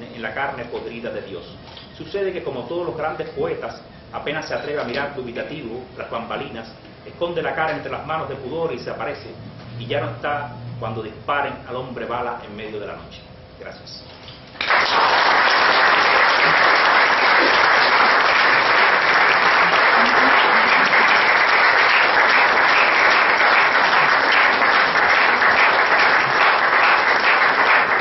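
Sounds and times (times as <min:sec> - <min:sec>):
audience applauding: 0:14.6 - 0:28.0.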